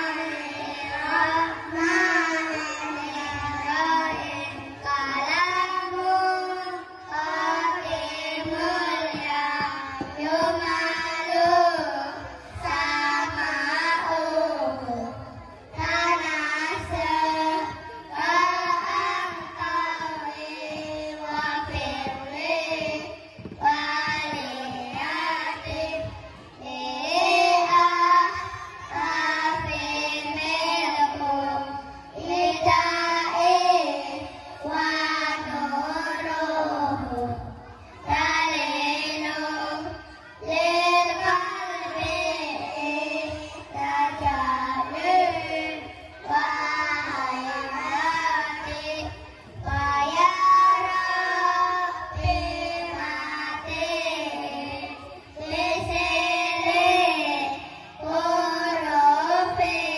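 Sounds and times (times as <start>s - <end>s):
children chanting in unison: 0.0s - 59.9s.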